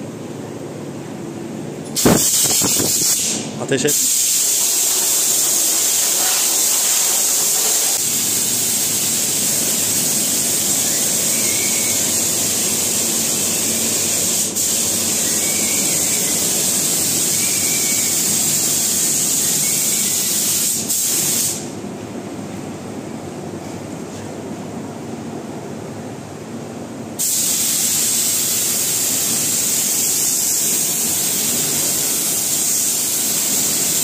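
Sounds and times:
spray gun hissing: 0:02.0 - 0:21.6, 0:27.2 - 0:34.0.

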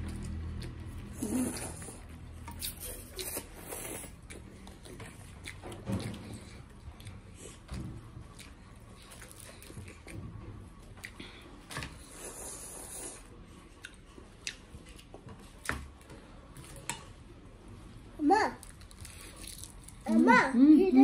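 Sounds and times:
chewing: 0:00.0 - 0:17.1, 0:18.6 - 0:20.2.

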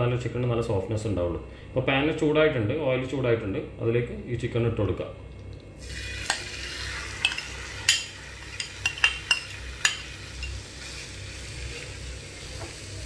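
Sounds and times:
chicken sizzling in hot oil: 0:05.8 - 0:13.0
metal spoon clinking and scraping: 0:06.1 - 0:11.0.

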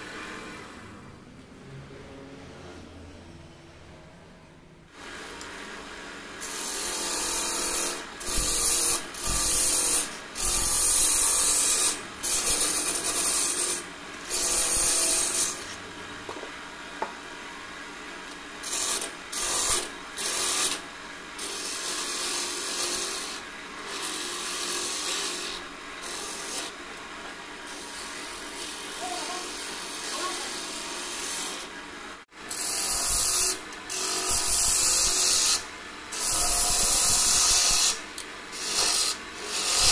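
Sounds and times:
turning tool cutting wood: 0:06.4 - 0:15.8, 0:21.4 - 0:26.8, 0:32.5 - 0:39.9.

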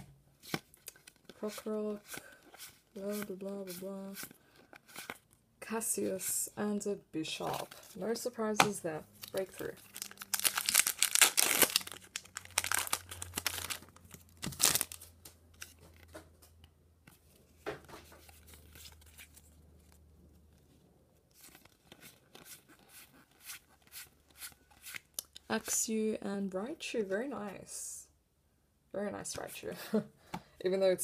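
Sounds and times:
foil wrapper tearing and crinkling: 0:09.2 - 0:15.0.

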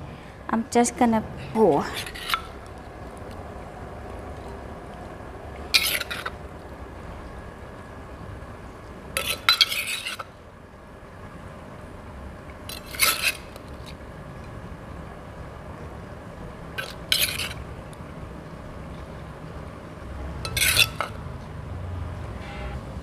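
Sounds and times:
metal spoon scraping and clinking: 0:01.8 - 0:03.3, 0:05.7 - 0:06.4, 0:09.2 - 0:10.3, 0:12.7 - 0:14.0, 0:16.8 - 0:17.6, 0:20.4 - 0:21.2.

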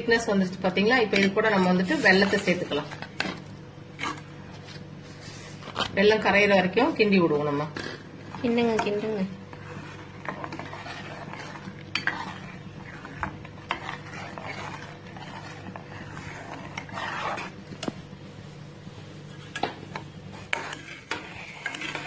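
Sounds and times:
metal ladle scraping a pan: 0:01.0 - 0:04.3, 0:07.3 - 0:17.6, 0:20.3 - 0:22.0.

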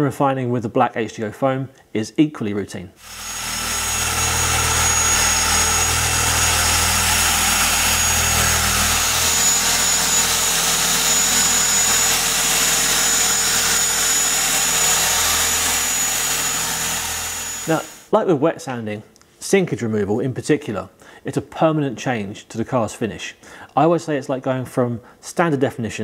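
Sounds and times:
electric polisher motor hum: 0:03.0 - 0:18.0.

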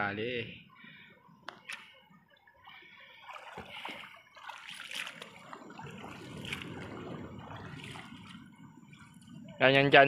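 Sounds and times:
river water splashing and trickling: 0:01.6 - 0:10.0.

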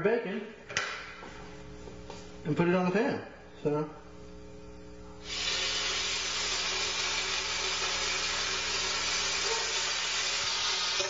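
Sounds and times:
bacon sizzling in a pan: 0:05.2 - 0:11.0.

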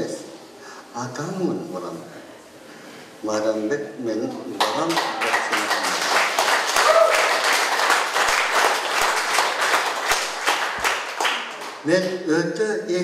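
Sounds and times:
group of people clapping: 0:04.5 - 0:12.2.

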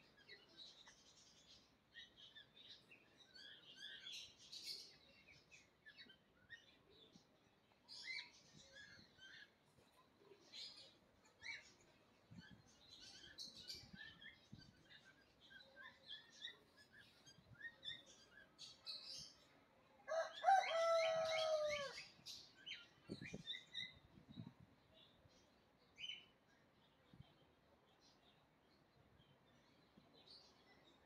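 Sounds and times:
small birds chirping: 0:00.0 - 0:31.0
rooster crowing: 0:20.1 - 0:22.0.

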